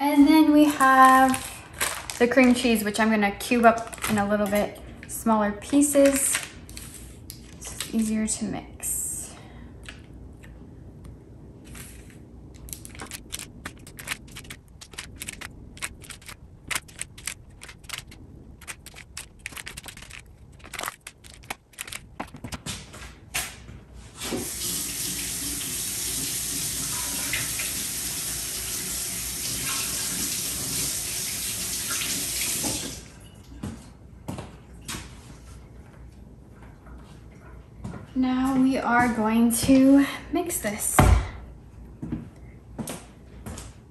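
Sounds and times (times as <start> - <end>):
kitchen faucet running: 24.3 - 33.2.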